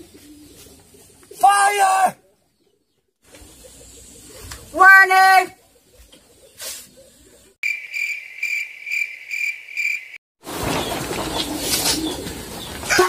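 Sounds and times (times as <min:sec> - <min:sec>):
cricket chirping: 0:07.6 - 0:10.2.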